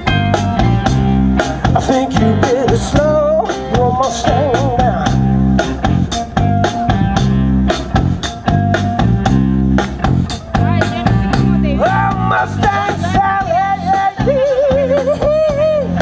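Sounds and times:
bending lead guitar line: 0.0 - 16.0
blues-rock band music: 0.0 - 16.0.

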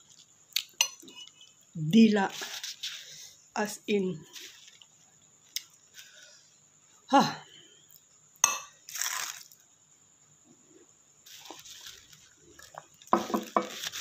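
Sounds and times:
breathy hiss: 2.3 - 3.6, 5.9 - 7.9
utensil knocking bowl: 13.1 - 13.8.

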